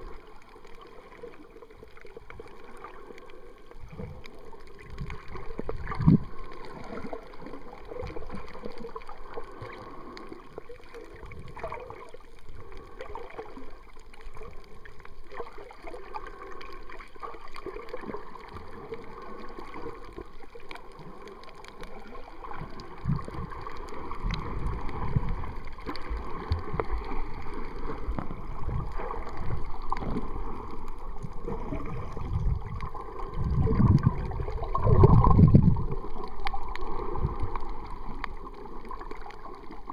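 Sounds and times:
muffled underwater sloshing: 0.0s - 39.9s
low thumps of water movement: 22.6s - 39.2s.

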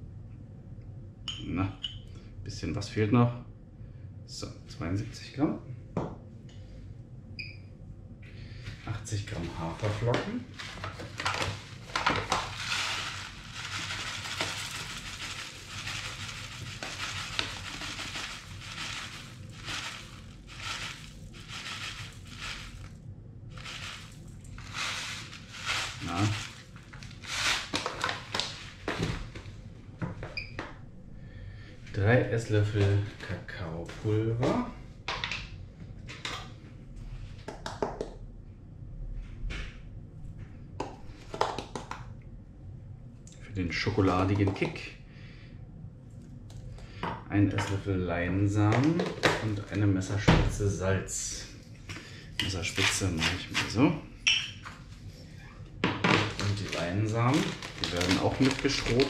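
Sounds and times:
oats pouring into metal bowl: 9.8s - 28.6s, 56.3s - 59.0s.

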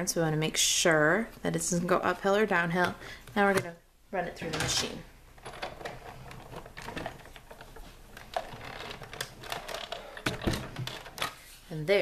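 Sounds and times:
hand-cranked machine clicking and creaking: 4.4s - 11.3s.

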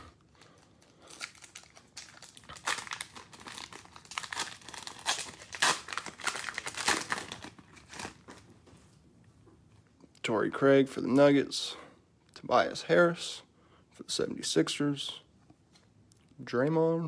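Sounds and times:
cellophane wrapper crinkling: 0.3s - 8.5s.

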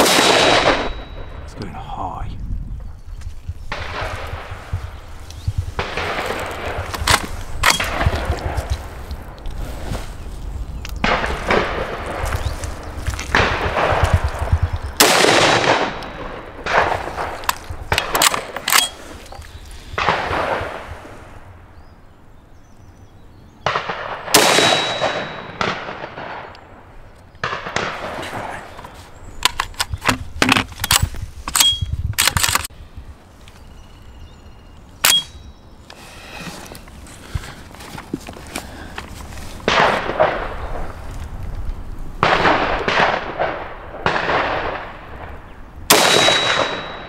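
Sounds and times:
rifle shots with ringing tail: 0.0s - 1.6s, 5.8s - 8.6s, 13.3s - 19.0s, 23.6s - 28.7s, 42.2s - 47.0s
rifle action metallic clacks: 5.9s - 8.8s, 15.7s - 19.0s, 28.7s - 32.7s, 35.0s - 35.4s.

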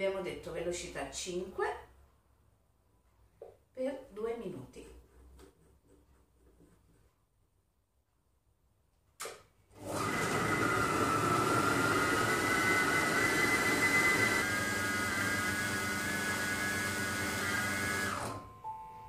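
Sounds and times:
kitchen machine motor whining: 9.7s - 18.4s.

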